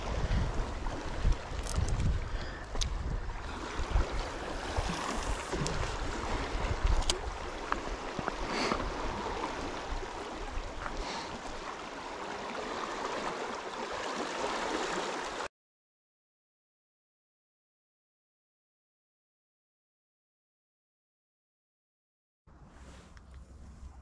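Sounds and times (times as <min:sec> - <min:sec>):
wind buffeting microphone: 0:00.0 - 0:11.0
fast-flowing water rushing: 0:03.0 - 0:15.5.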